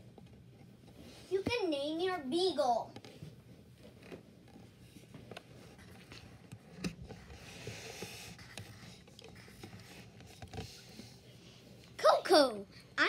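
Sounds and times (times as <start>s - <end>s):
pencil scratching on paper: 7.1s - 11.2s.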